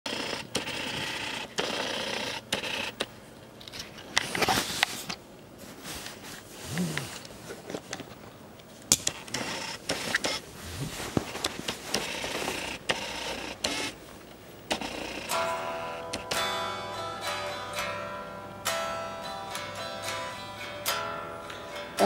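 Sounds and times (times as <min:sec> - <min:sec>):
device handling noise: 0:06.0 - 0:15.4.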